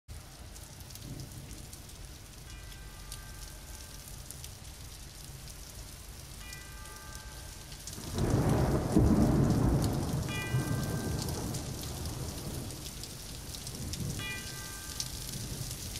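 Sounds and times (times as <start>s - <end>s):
steady rain: 0.1s - 15.9s
thunder rolling: 8.0s - 14.3s.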